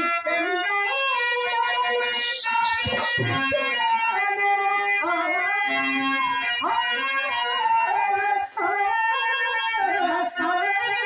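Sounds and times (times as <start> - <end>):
instrumental accompaniment: 0.0 - 8.8
person singing melismatic verse: 1.8 - 4.1.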